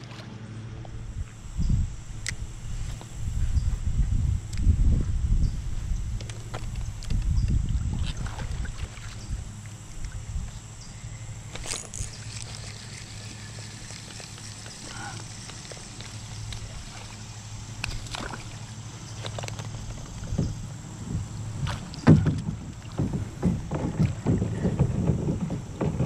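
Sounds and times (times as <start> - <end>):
low steady hum: 0.0 - 26.0
knocks and splashes: 6.4 - 9.2, 17.8 - 26.0.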